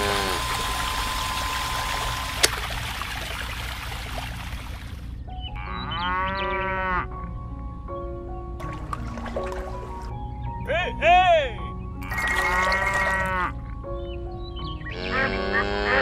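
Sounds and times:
water pouring into plastic pool: 0.0 - 5.0, 8.6 - 10.1, 12.0 - 13.3
cow mooing: 5.6 - 7.1, 12.0 - 13.5, 14.9 - 16.0.

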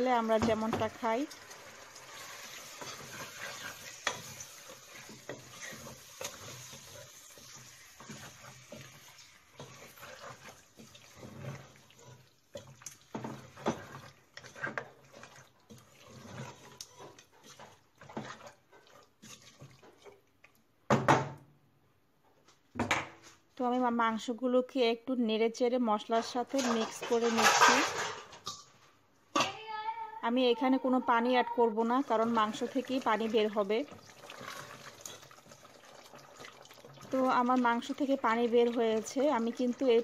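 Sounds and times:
light sizzle: 0.0 - 20.6, 30.5 - 40.0
spoon scraping and knocking pot: 2.2 - 20.2, 26.2 - 28.7.

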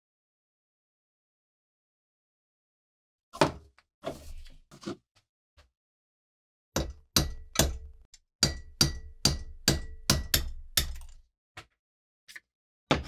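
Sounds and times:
hammer tapping on metal: 6.8 - 11.0.

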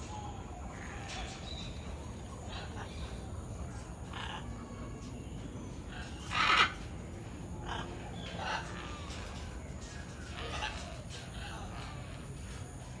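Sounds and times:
macaws squawking: 5.8 - 12.1.

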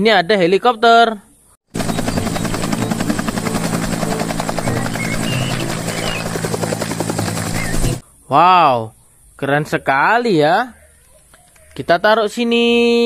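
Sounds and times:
helicopter engine hum: 1.7 - 8.0
helicopter rotor beating: 1.7 - 8.0.

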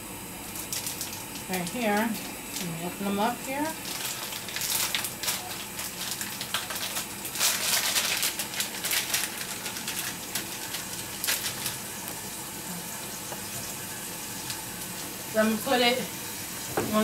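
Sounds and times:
burger patties sizzling: 0.0 - 17.0
plastic wrapping crinkling: 0.5 - 12.3.

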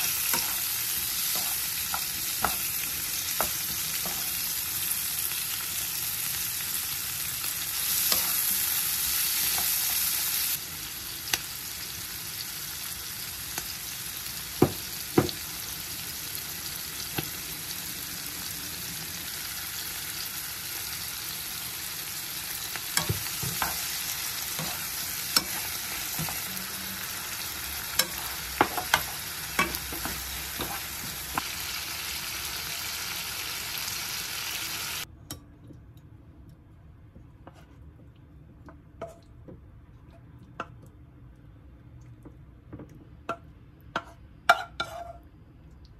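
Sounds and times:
food sizzling in a pan: 0.0 - 35.1, 44.0 - 45.2.

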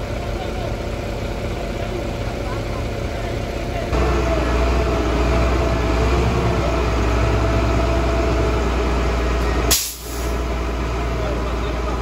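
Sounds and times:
diesel truck engine idling: 0.0 - 12.0.

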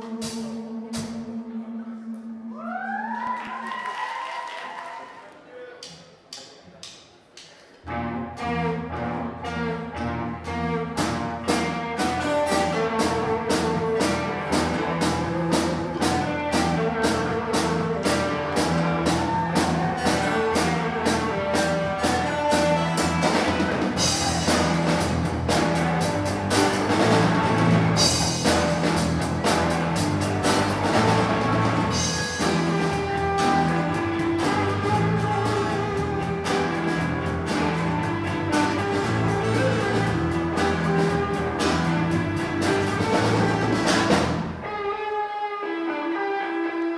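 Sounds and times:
drum kit beat: 0.0 - 1.6, 10.5 - 44.9
rock band playing: 0.0 - 2.5, 7.9 - 46.9.

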